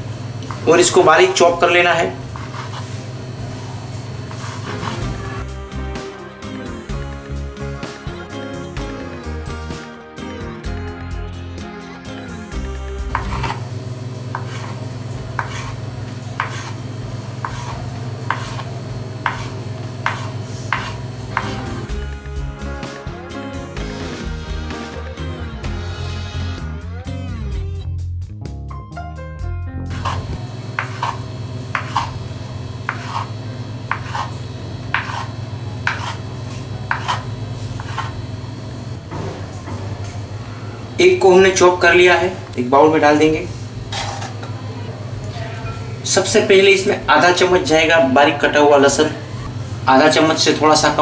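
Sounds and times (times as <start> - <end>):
steady low hum: 12.4 - 22.3, 29.9 - 41.0
knife chopping on wooden board: 13.1 - 13.6, 14.3 - 14.8, 15.4 - 15.8, 16.4 - 16.8, 17.4 - 21.6, 30.8 - 32.2, 32.9 - 33.3, 33.9 - 34.3, 34.9 - 36.2, 36.9 - 38.1.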